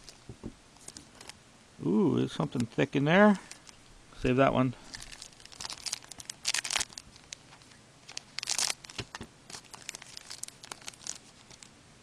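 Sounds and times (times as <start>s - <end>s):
foil wrapper crinkling and tearing: 0.0s - 0.2s, 0.8s - 1.4s, 2.4s - 3.8s, 4.8s - 11.7s.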